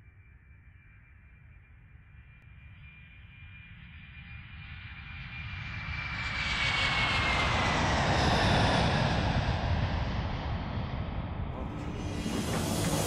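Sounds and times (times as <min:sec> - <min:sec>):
aircraft fly-by rush: 0:11.6 - 0:13.0.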